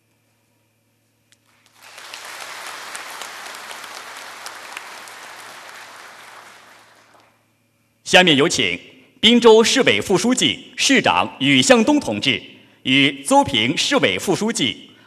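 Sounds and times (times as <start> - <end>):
audience applauding: 1.5 - 7.3.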